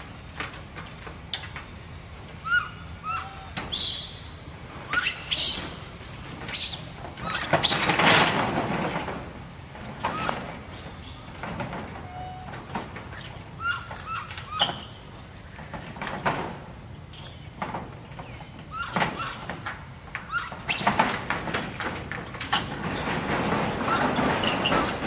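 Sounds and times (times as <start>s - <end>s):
high insect drone: 0.0s - 25.0s
rising chirping calls: 2.4s - 8.4s, 12.0s - 15.2s, 18.2s - 19.5s
monkeys knocking on metal roof: 17.6s - 25.0s.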